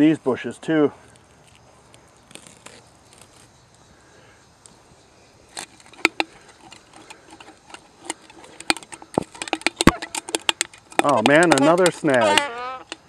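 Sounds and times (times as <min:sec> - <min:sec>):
fishing line clicking on can: 0:05.5 - 0:13.0.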